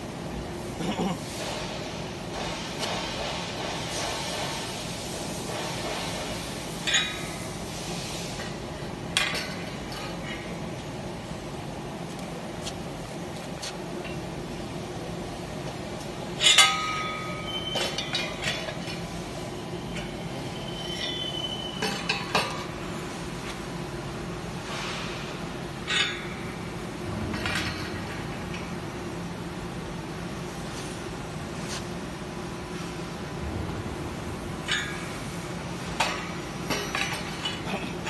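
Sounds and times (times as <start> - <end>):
steady hum: 0.0 - 38.0
metal-on-metal clanks: 6.8 - 7.5, 16.4 - 19.2, 19.9 - 22.8, 25.8 - 28.8, 34.6 - 38.0.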